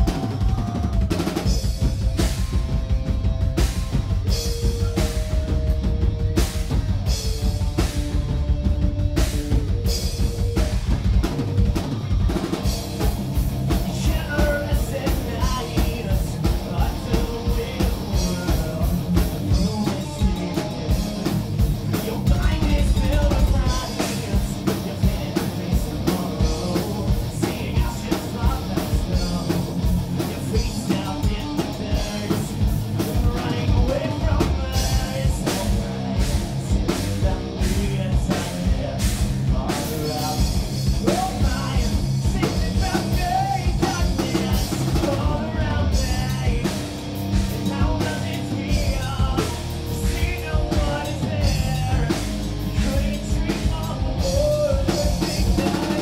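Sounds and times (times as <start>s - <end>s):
man singing into a microphone: 0.0s - 2.0s, 13.9s - 56.0s
bass guitar: 0.0s - 56.0s
drum kit beat: 0.0s - 56.0s
electric guitar: 0.0s - 56.0s.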